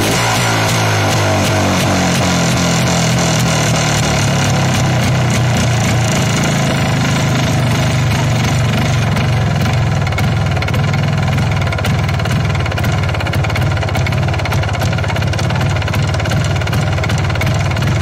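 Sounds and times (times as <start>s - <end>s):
two-stroke engine idling: 0.0s - 18.0s.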